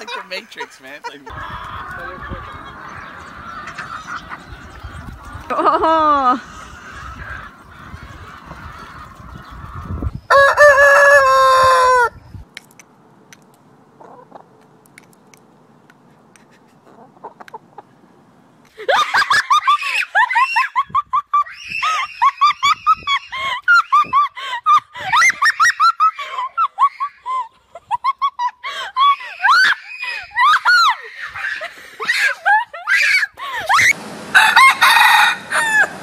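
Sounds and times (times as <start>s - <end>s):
child shrieking and laughing: 5.4s - 7.2s, 18.7s - 34.0s.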